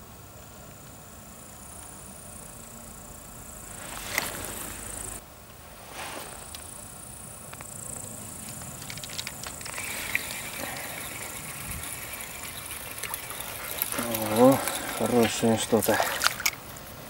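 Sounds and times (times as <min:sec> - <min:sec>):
high insect buzz: 0:00.9 - 0:17.0
lake water rippling: 0:03.6 - 0:05.2, 0:08.3 - 0:17.0
wind on microphone: 0:09.8 - 0:12.7.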